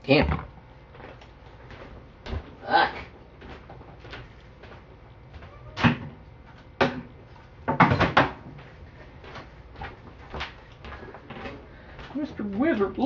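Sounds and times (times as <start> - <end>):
hard objects knocking and clattering: 6.8 - 8.6.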